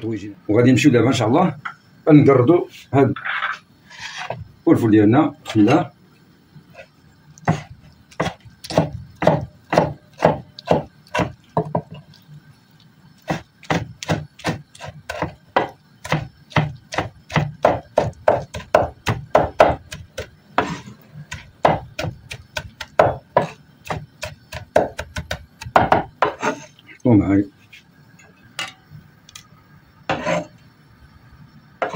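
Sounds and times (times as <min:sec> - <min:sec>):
knife chopping on wooden board: 0:07.5 - 0:11.9, 0:13.3 - 0:26.5.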